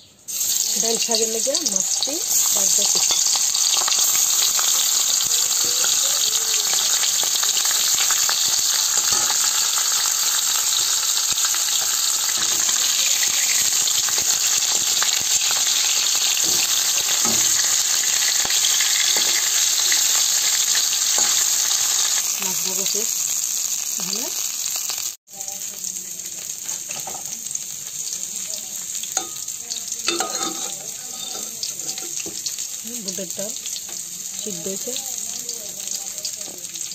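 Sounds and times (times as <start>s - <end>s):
fish frying in hot oil: 0.3s - 36.9s
metal spatula scraping pan: 30.1s - 32.4s.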